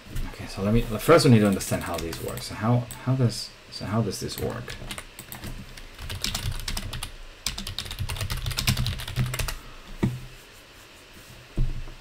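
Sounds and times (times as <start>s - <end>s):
computer keyboard typing: 1.4s - 2.4s, 4.4s - 9.6s.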